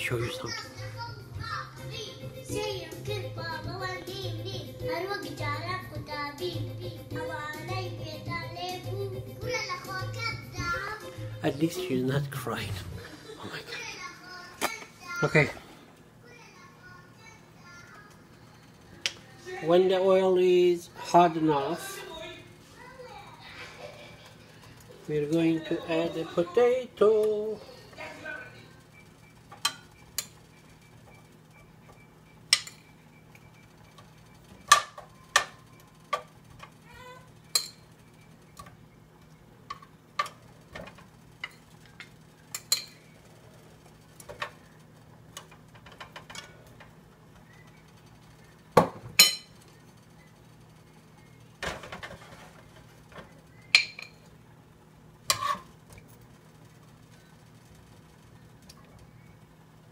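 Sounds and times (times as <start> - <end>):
utensils and dishes clinking: 29.5 - 31.2, 32.5 - 33.0, 33.9 - 36.7, 37.4 - 38.0, 38.6 - 43.2, 45.3 - 47.0, 48.8 - 49.9, 51.6 - 54.4.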